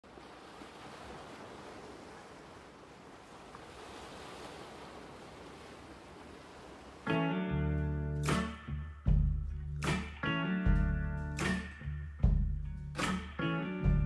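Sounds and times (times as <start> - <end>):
waves breaking on a beach: 0.0 - 7.2.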